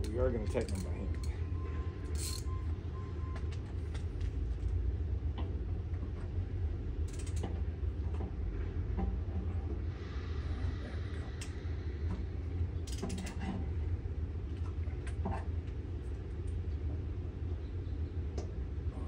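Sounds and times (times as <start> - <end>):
metallic clicks of bolts turning: 0.0 - 1.4, 2.1 - 2.5, 7.1 - 7.5, 12.9 - 13.4
steady low hum: 0.0 - 19.0.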